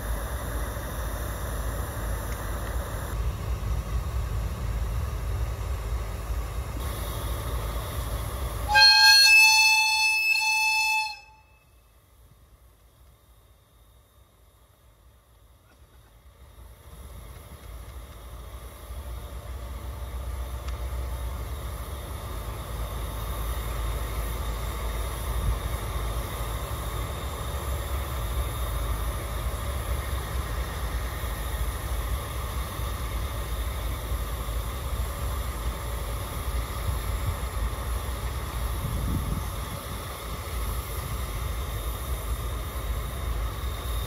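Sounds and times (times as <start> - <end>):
diesel locomotive engine rumbling: 0.0 - 44.0.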